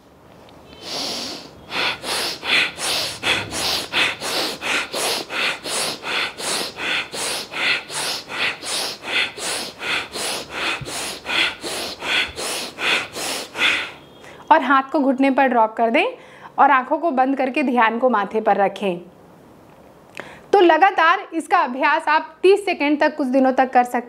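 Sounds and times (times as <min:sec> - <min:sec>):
rapid forceful nose breathing: 0:00.8 - 0:14.2.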